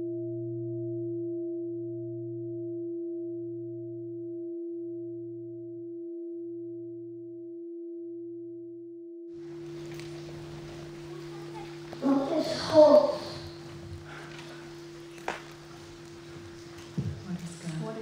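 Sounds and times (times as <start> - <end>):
room hiss: 9.4 - 18.0.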